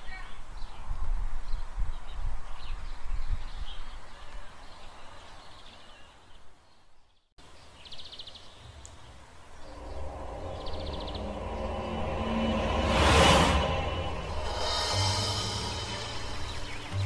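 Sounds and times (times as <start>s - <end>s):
low rumble: 9.5s - 17.0s
music: 9.7s - 17.0s
bird chirps: 14.4s - 17.0s.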